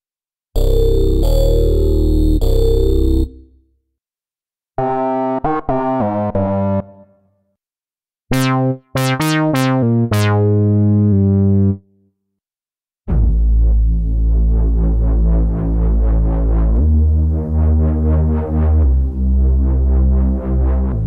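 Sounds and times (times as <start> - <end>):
synthesizer lead melody: 8.3 - 11.8.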